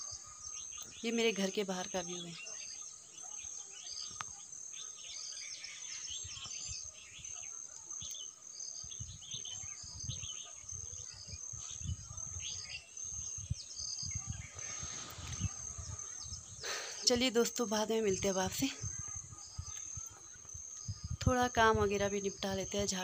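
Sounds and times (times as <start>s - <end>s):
birds chirping and calling: 0.0s - 23.0s
wind buffeting microphone: 8.7s - 23.0s.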